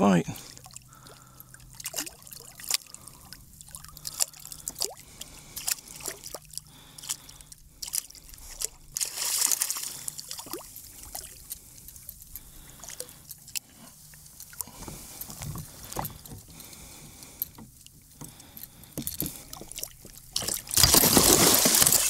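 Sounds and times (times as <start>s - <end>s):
water dripping and trickling: 0.4s - 14.8s, 16.0s - 22.0s
loud water splash: 20.7s - 22.0s.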